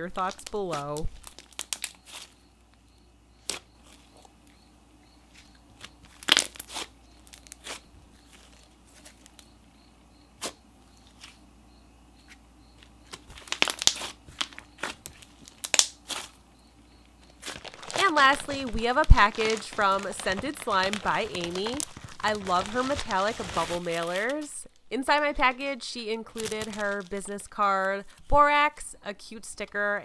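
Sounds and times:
slime squishing: 5.3s - 9.4s, 13.1s - 16.4s, 17.4s - 24.5s.

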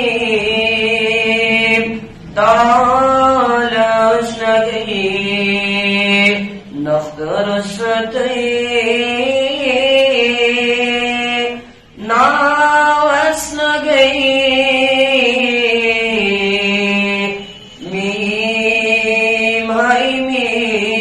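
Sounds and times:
person singing unaccompanied: 0.0s - 21.0s.

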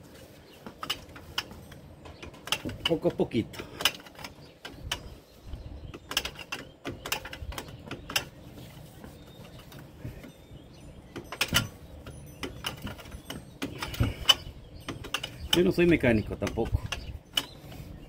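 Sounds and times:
sharp metal knocks: 11.1s - 17.6s
ratchet clicking: 11.2s - 17.6s.

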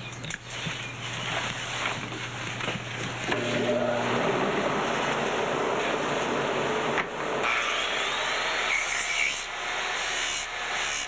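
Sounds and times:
low motor hum: 0.6s - 7.4s
grinder sanding: 7.4s - 11.0s.

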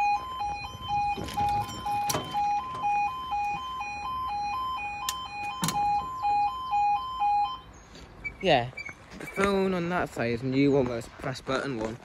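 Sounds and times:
level crossing two-tone alarm: 0.0s - 8.5s.

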